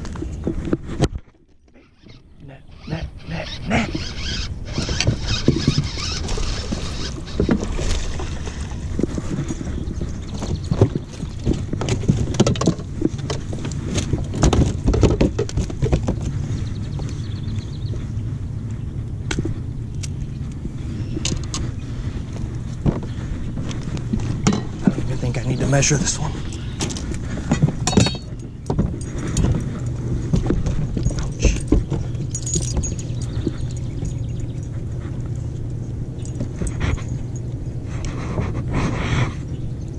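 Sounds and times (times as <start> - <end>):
steady low hum: 0.0 - 39.9
steady low rumble: 2.2 - 39.9.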